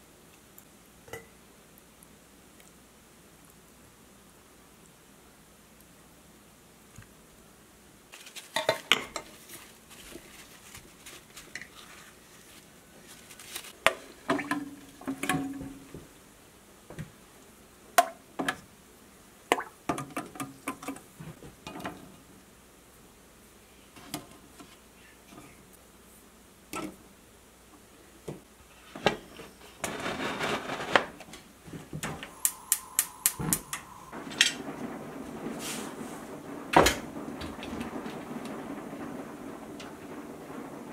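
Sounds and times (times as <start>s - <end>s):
rushing noise: 32.0s - 40.9s.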